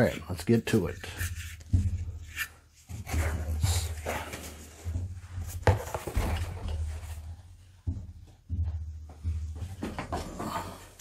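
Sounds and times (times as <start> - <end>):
rubbing and rustling of packaging: 0.0 - 7.3.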